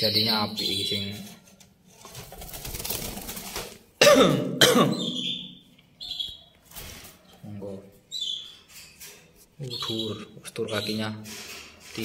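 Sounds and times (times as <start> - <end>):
canary chirping: 0.0 - 1.5, 4.9 - 11.7
person coughing: 4.0 - 5.2.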